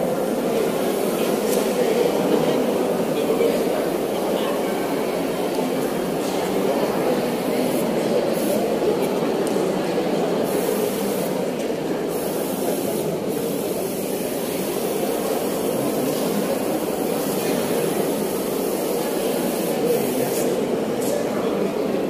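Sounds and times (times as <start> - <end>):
murmur of audience chatting: 0.0 - 22.0.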